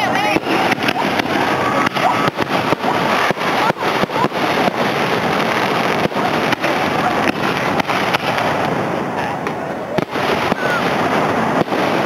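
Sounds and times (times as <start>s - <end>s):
fireworks bursting and crackling: 0.0s - 12.0s
fireworks whistles rising: 0.0s - 12.0s.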